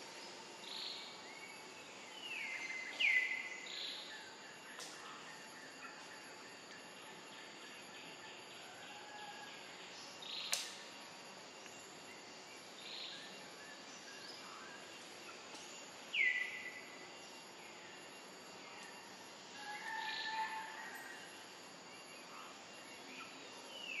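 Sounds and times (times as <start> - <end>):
steady outdoor hiss: 0.0 - 24.0
sharp click: 10.5 - 10.8.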